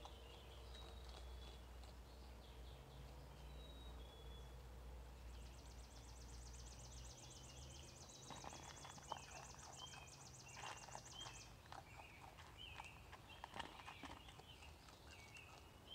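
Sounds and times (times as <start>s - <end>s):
animal eating crunches: 0.0s - 3.2s, 7.5s - 15.9s
birds chirping: 0.0s - 15.9s.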